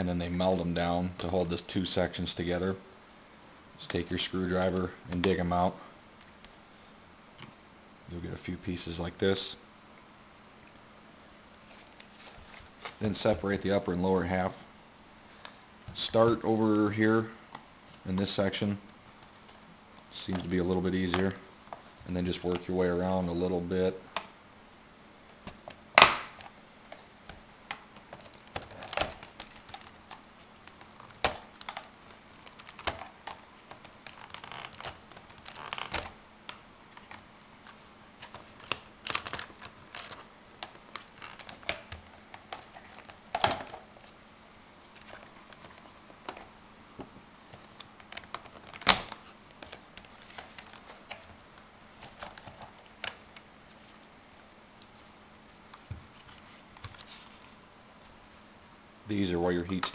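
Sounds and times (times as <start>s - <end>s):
plastic clicks and cracks: 27.3s - 44.1s.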